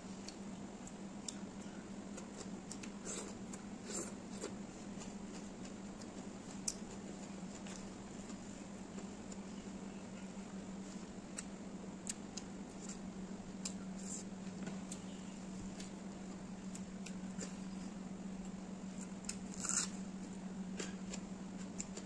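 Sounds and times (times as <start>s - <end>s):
steady low hum: 0.0s - 22.0s
chewing and smacking: 0.2s - 9.6s.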